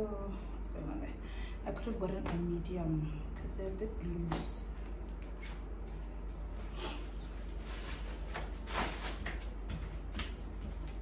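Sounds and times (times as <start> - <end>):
low steady hum: 0.0 - 11.0
fabric rustling and scraping: 6.3 - 11.0.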